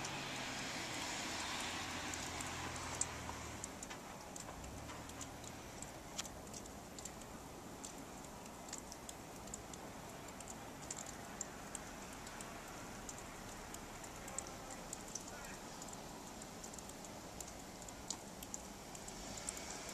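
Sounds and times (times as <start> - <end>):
hiss of falling snow: 19.0 - 19.9.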